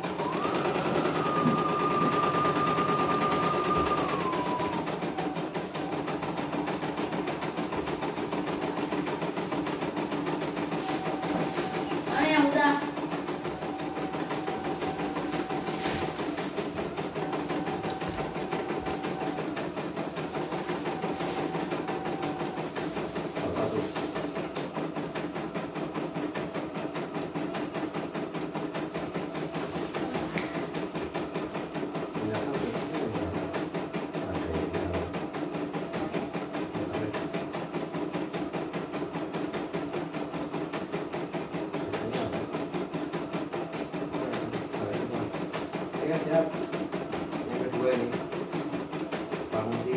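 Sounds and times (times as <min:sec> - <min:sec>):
machine motor hum: 0:00.0 - 0:39.8.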